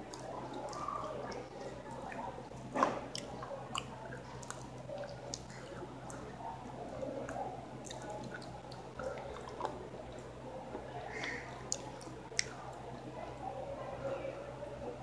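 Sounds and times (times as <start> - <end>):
faint steady hum: 0.0 - 15.0
person chewing: 0.1 - 6.3, 7.2 - 10.2.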